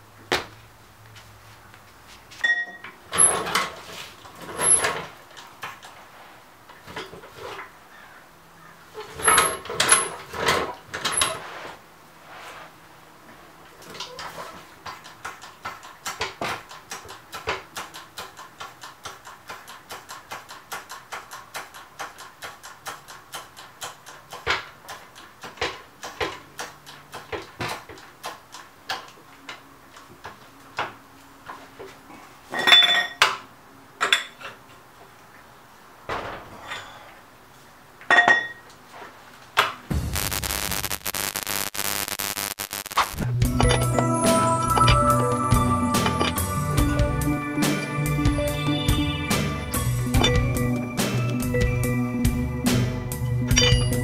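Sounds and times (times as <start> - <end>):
floor jack pumping clicks: 14.8 - 29.1
static-like glitch noise: 39.9 - 45.0
ringing metal clanks: 43.5 - 46.8, 49.8 - 50.7, 53.5 - 54.0.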